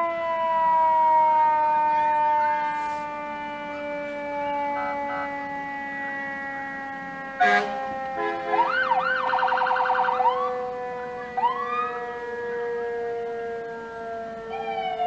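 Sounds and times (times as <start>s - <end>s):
emergency vehicle siren: 0.0s - 15.0s
short horn blast: 7.4s - 8.7s.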